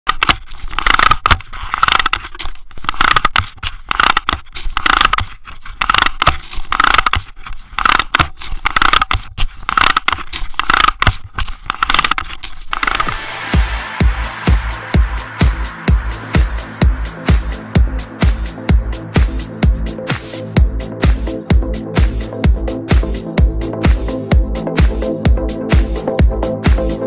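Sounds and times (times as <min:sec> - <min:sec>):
camera handling scraping: 0:00.1 - 0:13.1.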